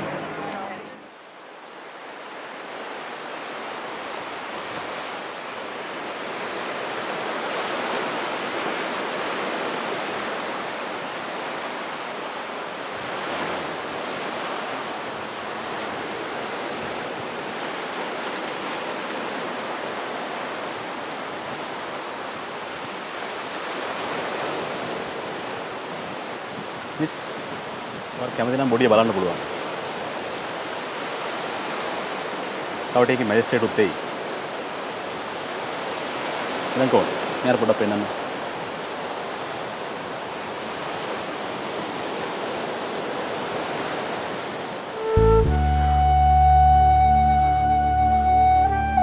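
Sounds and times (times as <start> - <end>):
sea surf rushing: 0.0 - 49.0.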